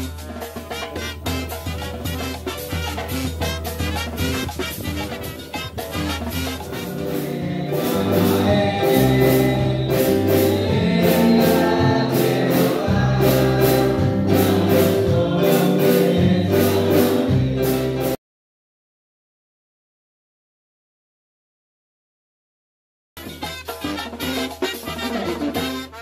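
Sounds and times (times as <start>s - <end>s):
group singing over bass and beat: 6.5s - 18.2s.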